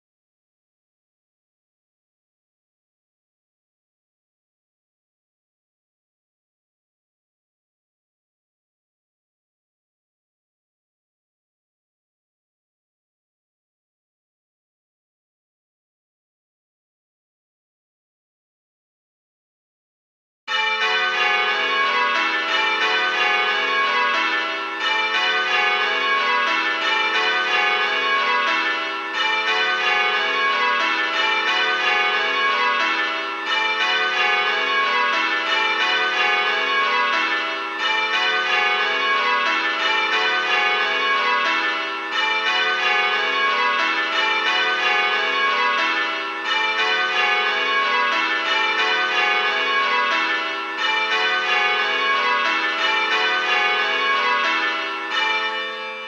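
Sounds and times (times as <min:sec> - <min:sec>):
tower bells change ringing: 0:20.5 - 0:56.0.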